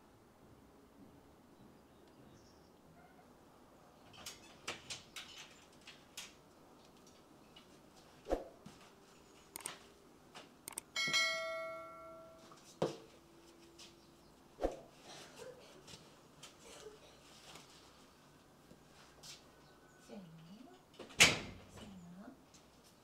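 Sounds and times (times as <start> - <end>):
quick clicks: 9.5 - 9.8, 10.7 - 10.9
door opening clicks: 9.6 - 9.8
bright bell chime: 11.0 - 12.5.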